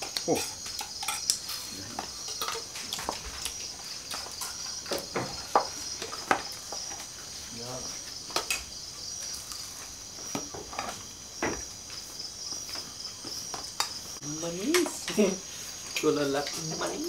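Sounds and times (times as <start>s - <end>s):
night insects chirring: 0.0s - 17.0s
spoons clinking on plates: 0.4s - 3.1s.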